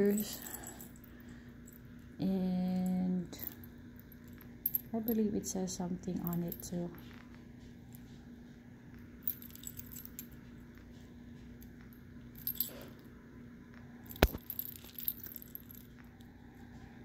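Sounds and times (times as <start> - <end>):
metal chain jingling against beads: 0.0 - 1.9, 2.5 - 7.2, 9.2 - 10.6, 12.4 - 13.0, 14.1 - 16.0
faint steady hum: 0.0 - 17.0.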